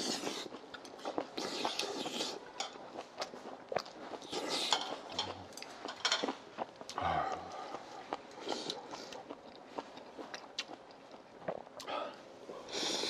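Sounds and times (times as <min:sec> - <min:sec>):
chewing and mouth noises: 0:00.0 - 0:13.0
chopsticks clicking against bowls: 0:04.3 - 0:06.4.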